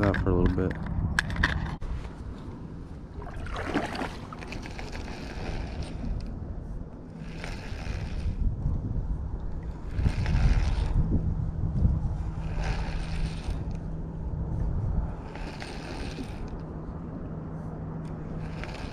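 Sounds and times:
wind rumbling on microphone: 0.0 - 18.9
water swishing against boat: 2.9 - 6.2.

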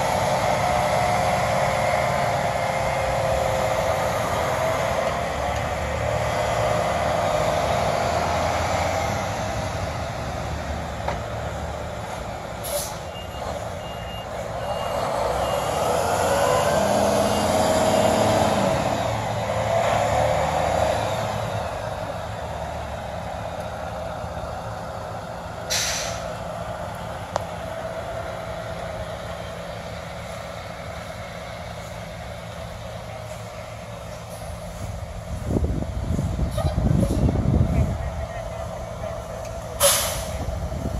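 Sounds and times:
dump truck diesel engine revving: 0.0 - 40.9
air brake hiss: 12.6 - 13.1, 25.7 - 26.3, 39.8 - 40.5.

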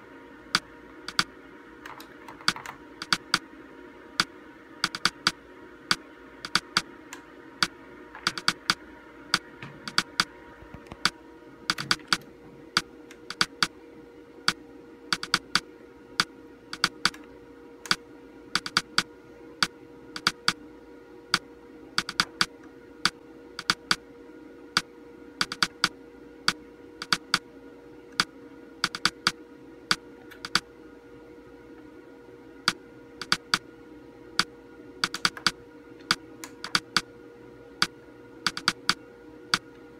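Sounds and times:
steady hum: 0.0 - 39.9
monitor buttons clicking: 1.9 - 3.4, 4.8 - 5.4, 8.2 - 8.8, 9.4 - 12.3, 13.1 - 13.7, 15.2 - 15.6, 18.6 - 19.1, 22.0 - 22.5, 27.0 - 27.4, 32.7 - 33.6, 35.0 - 37.1, 38.5 - 39.0.

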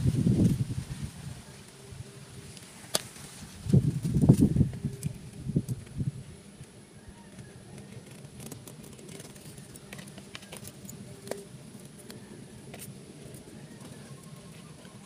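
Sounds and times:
coconut husk fibres tearing: 2.5 - 5.9.

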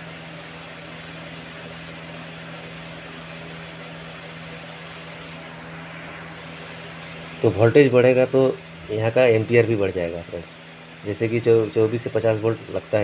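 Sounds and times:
steady background hum: 0.0 - 13.0.

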